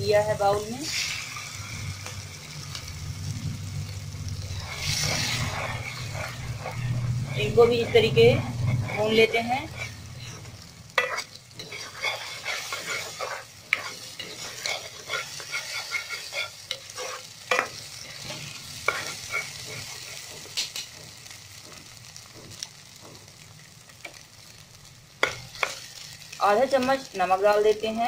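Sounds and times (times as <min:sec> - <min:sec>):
eggs sizzling in a wok: 0:00.0 - 0:28.0
plastic spatula scraping a pan: 0:11.0 - 0:17.7.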